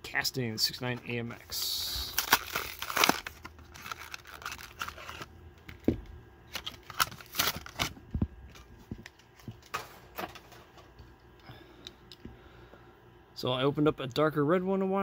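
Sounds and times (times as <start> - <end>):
plastic blister crinkling: 1.5 - 5.8, 6.5 - 9.8
cardboard tearing: 2.1 - 5.3, 6.6 - 7.9.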